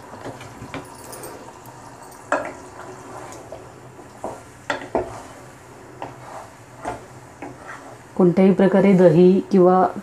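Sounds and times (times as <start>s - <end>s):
spatula stirring thick sauce: 2.3s - 8.2s
spatula knocking against pan: 4.2s - 5.2s.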